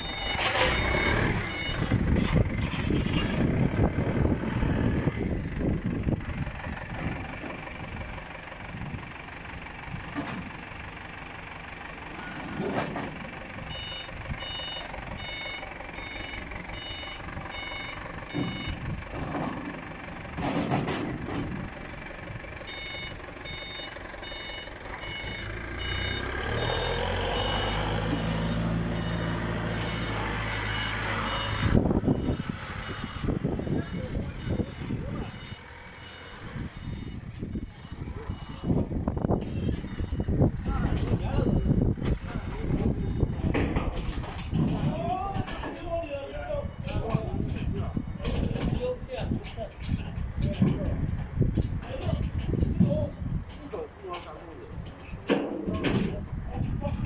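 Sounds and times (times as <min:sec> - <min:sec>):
forklift reversing alarm beeping: 0:00.0 - 0:02.8, 0:12.1 - 0:44.1, 0:45.6 - 0:47.7
forklift engine running: 0:00.0 - 0:57.0.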